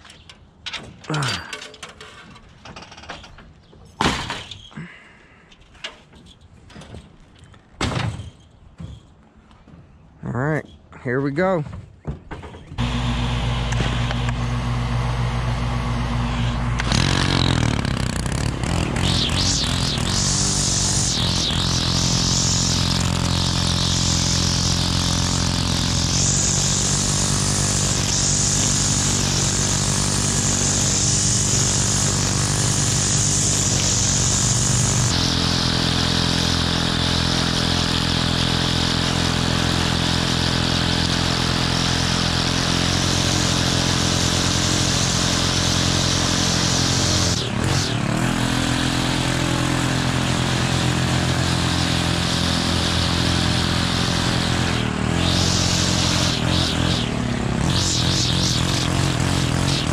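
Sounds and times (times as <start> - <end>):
string trimmer engine running: 12.8 - 59.9
trimmer line cutting grass: 12.8 - 59.9.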